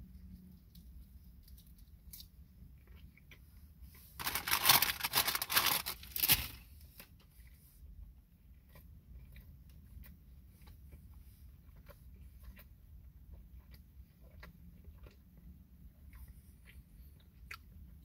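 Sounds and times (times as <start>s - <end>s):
faint chewing: 0.1s - 18.0s
food packaging crinkling: 4.2s - 7.1s.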